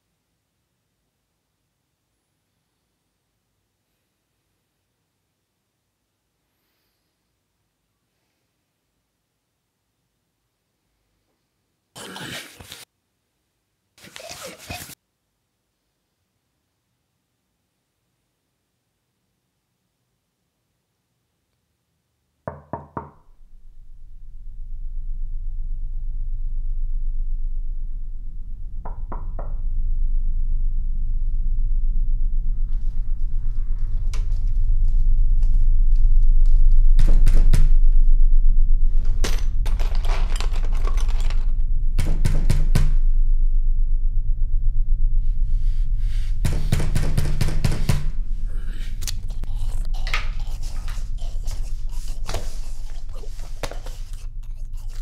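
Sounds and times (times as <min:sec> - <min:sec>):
low film score drone: 0:23.3 - 0:55.0.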